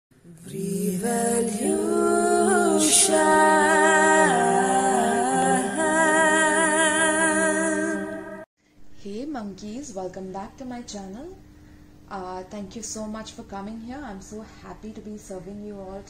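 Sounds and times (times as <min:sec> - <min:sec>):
women singing in harmony: 0:00.3 - 0:08.5.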